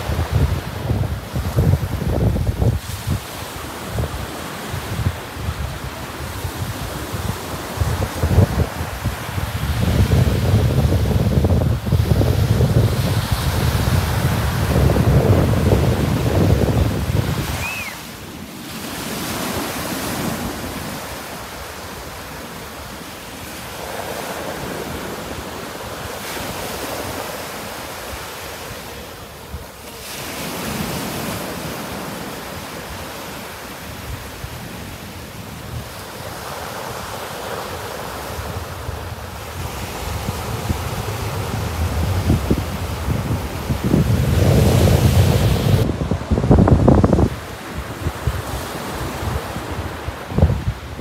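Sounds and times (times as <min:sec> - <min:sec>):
wind buffeting microphone: 0:00.0 - 0:22.5, 0:38.0 - 0:51.0
waves washing up beach: 0:00.0 - 0:51.0.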